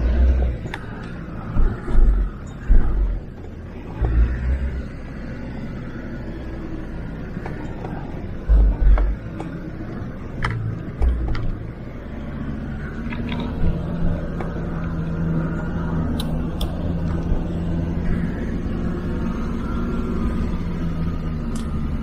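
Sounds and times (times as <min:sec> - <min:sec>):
diesel engine running low: 0:00.0 - 0:22.0
heavy low thuds: 0:01.4 - 0:03.3.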